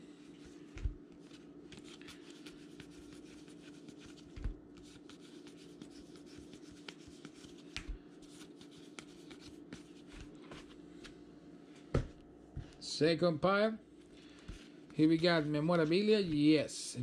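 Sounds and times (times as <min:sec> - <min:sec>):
faint steady hum: 0:00.0 - 0:17.0
cards being flipped through: 0:00.4 - 0:11.2.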